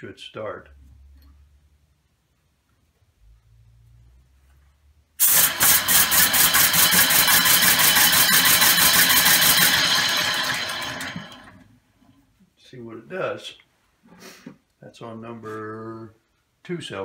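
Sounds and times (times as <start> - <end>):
air engine exhaust chuffing: 5.2 - 11.4.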